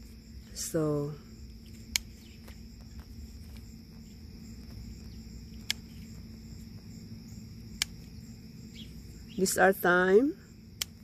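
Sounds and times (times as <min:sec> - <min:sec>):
crickets chirring: 0:00.0 - 0:11.0
scissors snipping stems: 0:01.7 - 0:03.7, 0:05.6 - 0:06.8, 0:07.7 - 0:08.2, 0:10.7 - 0:11.0.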